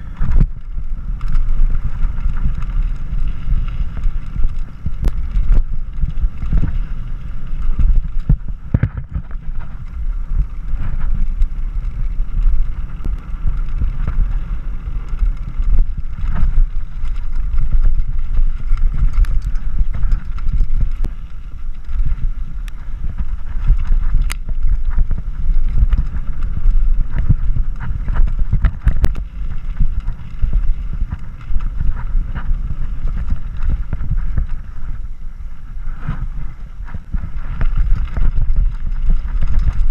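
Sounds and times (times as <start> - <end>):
bike rattling clicks and knocks: 0.0 - 35.2, 36.0 - 39.9
wind rumble on microphone: 0.0 - 39.9.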